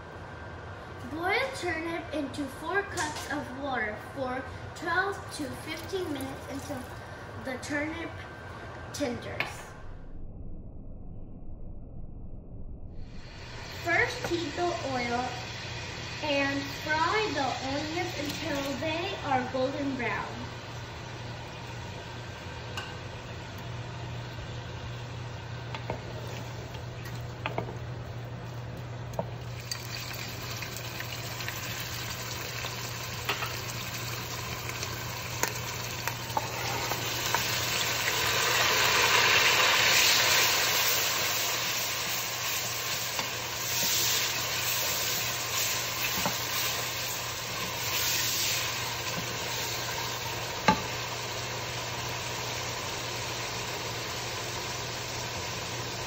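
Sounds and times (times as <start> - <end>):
steady low hum: 0.0 - 56.0
food frying in hot oil: 5.4 - 7.1, 13.1 - 22.8, 29.1 - 56.0.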